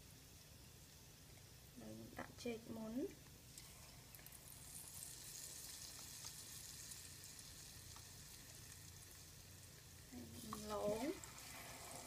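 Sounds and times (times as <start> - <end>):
hot oil sizzling: 2.9 - 12.0.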